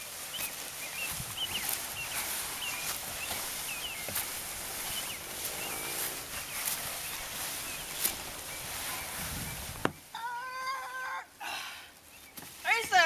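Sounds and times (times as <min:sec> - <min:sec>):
steady outdoor hiss: 0:00.0 - 0:13.0
small bird chirping: 0:00.2 - 0:10.1.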